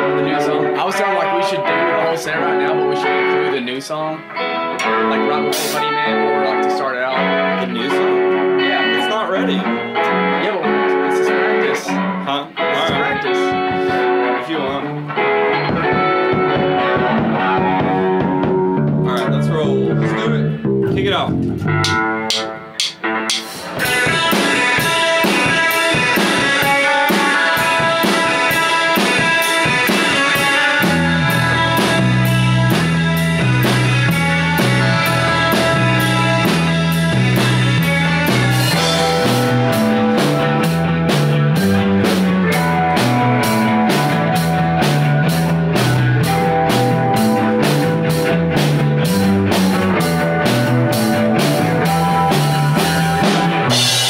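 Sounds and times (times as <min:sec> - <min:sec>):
electric guitars: 0:00.0 - 0:54.0
drum kit: 0:04.7 - 0:06.7, 0:11.3 - 0:54.0
low bass line: 0:15.6 - 0:24.2, 0:30.8 - 0:54.0.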